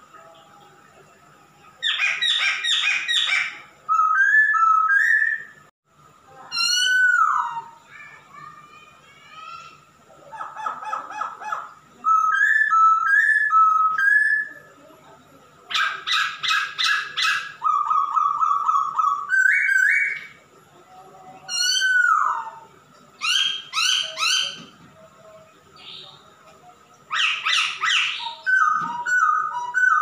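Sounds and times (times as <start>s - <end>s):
bird singing varied phrases: 1.8s - 5.7s, 6.5s - 8.5s, 10.4s - 14.8s, 15.7s - 20.4s, 21.4s - 24.7s, 25.7s - 26.3s, 27.0s - 30.0s.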